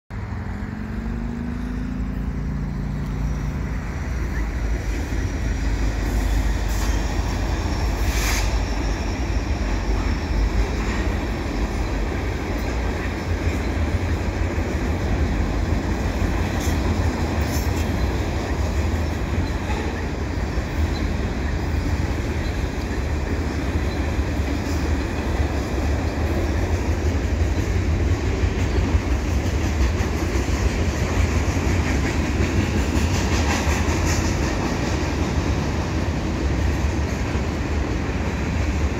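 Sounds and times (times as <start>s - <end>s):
steel train wheels rumbling on rail: 0.1s - 38.9s
faint high wheel squeal: 1.5s - 12.0s.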